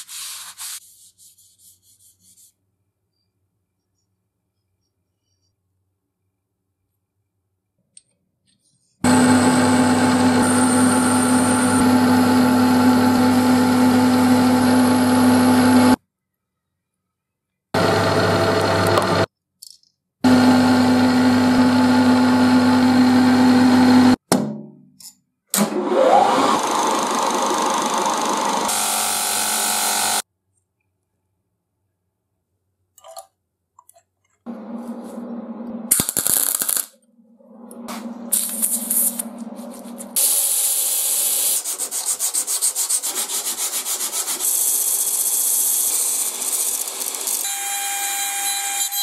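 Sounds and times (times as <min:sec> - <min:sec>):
bench grinder whining: 0:09.0 - 0:16.0, 0:17.8 - 0:19.3, 0:20.2 - 0:24.2, 0:25.7 - 0:30.2, 0:44.4 - 0:49.0
metal lathe humming: 0:26.3 - 0:30.2.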